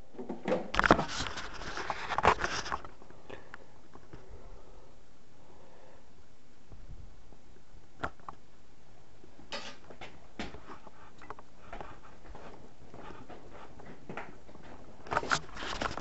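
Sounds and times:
steady faint hiss: 0:00.0 - 0:16.0
light clicks and rustles of handling: 0:09.5 - 0:16.0.

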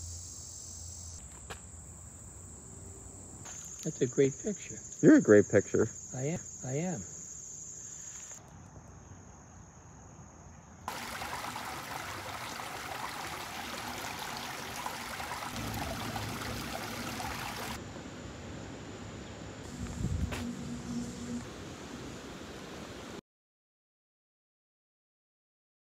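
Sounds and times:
stream trickling over stones: 0:10.9 - 0:17.8.

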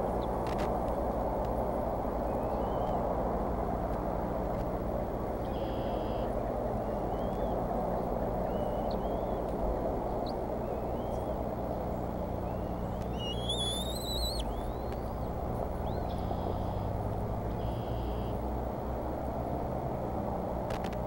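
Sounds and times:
low background rumble: 0:00.0 - 0:21.0
faint bird chirps: 0:02.3 - 0:03.0, 0:05.4 - 0:09.5, 0:10.1 - 0:16.9, 0:17.5 - 0:18.4
high wavering bird call: 0:08.4 - 0:09.4, 0:10.6 - 0:11.4, 0:12.4 - 0:16.9.

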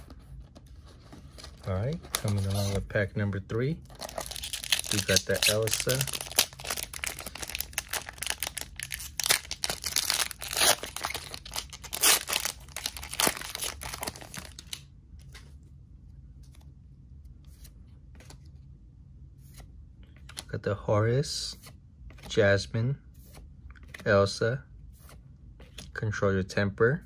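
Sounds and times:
foil wrapper tearing and crinkling: 0:04.0 - 0:14.8.

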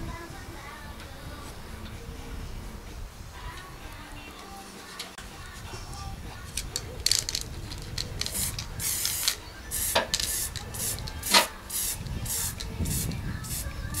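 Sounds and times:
aerosol spray can hissing: 0:08.1 - 0:14.0.

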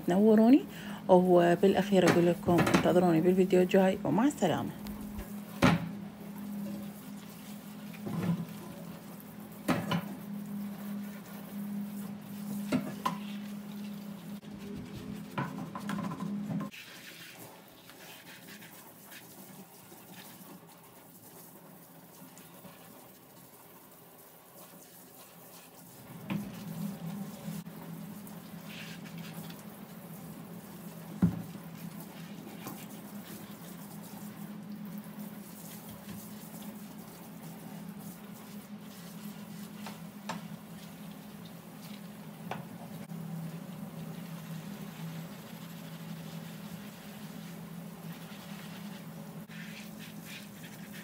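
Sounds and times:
dishes being scrubbed: 0:06.4 - 0:21.4, 0:28.4 - 0:34.6, 0:44.2 - 0:51.0.

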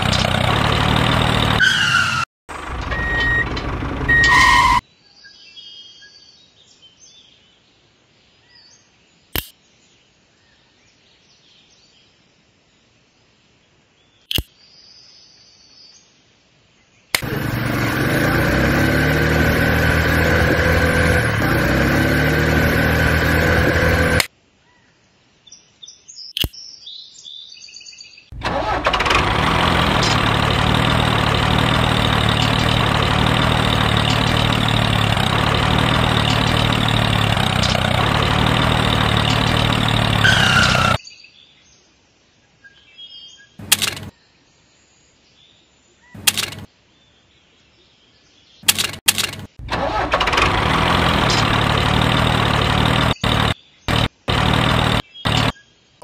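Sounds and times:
toy tractor motor running: 0:17.2 - 0:24.3, 0:28.4 - 0:41.0, 0:43.6 - 0:44.1, 0:46.2 - 0:46.7, 0:48.7 - 0:55.5.

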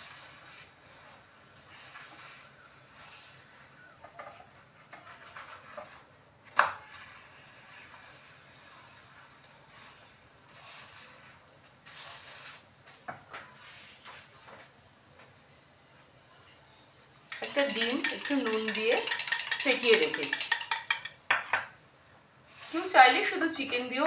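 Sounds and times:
wooden spatula scraping pan: 0:00.0 - 0:12.6, 0:17.3 - 0:21.1, 0:22.5 - 0:24.0.

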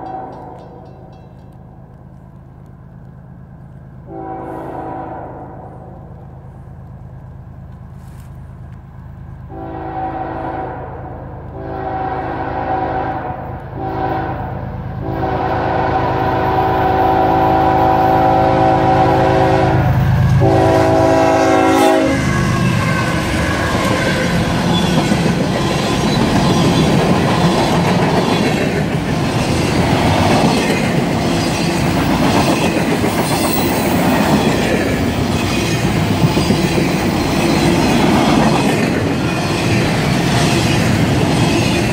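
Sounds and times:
train air horn blasts: 0:00.0 - 0:00.9, 0:04.0 - 0:06.0, 0:09.5 - 0:23.1
diesel locomotive rumble: 0:00.0 - 0:41.9
steady rail noise: 0:00.0 - 0:41.9
train wheels clattering: 0:22.1 - 0:41.9.

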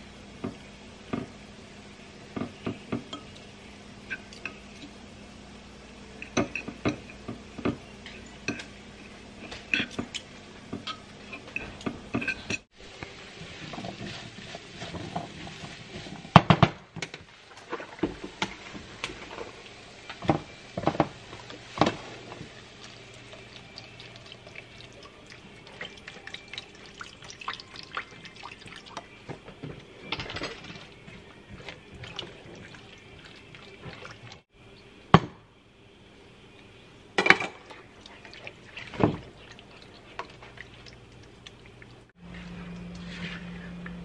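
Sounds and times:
carrots sizzling in a skillet: 0:12.8 - 0:26.9
liquid pouring: 0:21.8 - 0:29.1, 0:30.2 - 0:34.4.

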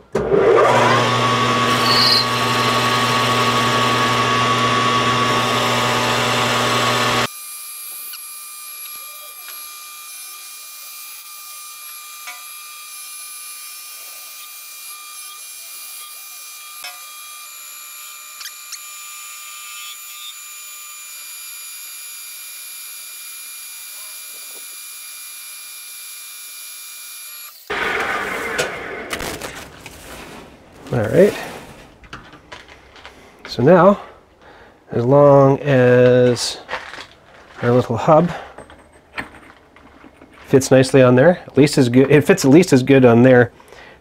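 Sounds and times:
metal lathe whining: 0:00.2 - 0:07.3
irregular handling noise: 0:29.2 - 0:33.6.

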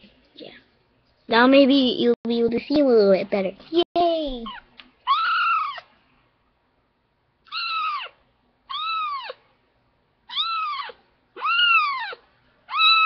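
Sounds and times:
kitten meowing: 0:04.4 - 0:05.9, 0:07.5 - 0:09.4, 0:10.3 - 0:13.0.

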